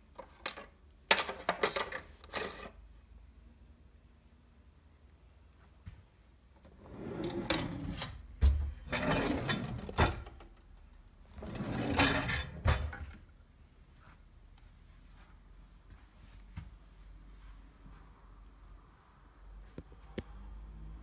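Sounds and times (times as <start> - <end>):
drawers sliding on runners: 1.3 - 2.8, 6.6 - 10.3, 11.3 - 13.2.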